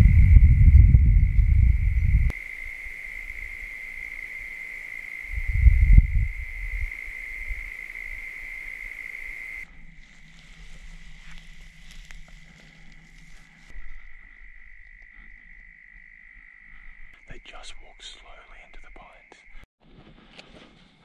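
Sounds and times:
low microphone rumbles: 0.0 - 2.3, 5.3 - 6.9
insects chorus: 0.0 - 19.7.

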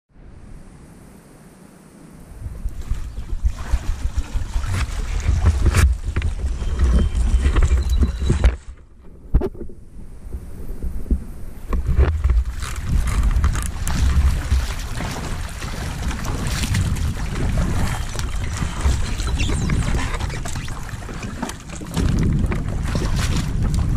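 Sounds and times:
wind buffeting microphone: 2.2 - 23.9
water splashing from wading: 2.4 - 8.6, 11.4 - 23.9.

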